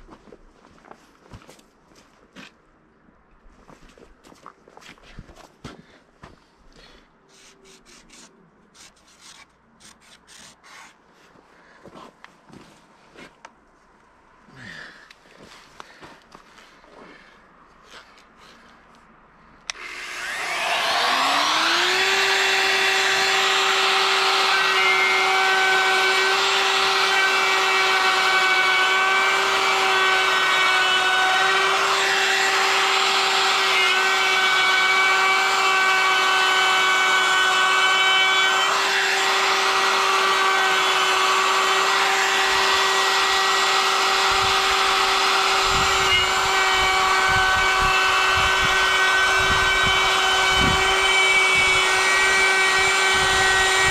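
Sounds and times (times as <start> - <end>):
router whining: 15.8 - 19.0, 19.6 - 53.9
router bit cutting wood: 19.7 - 53.9.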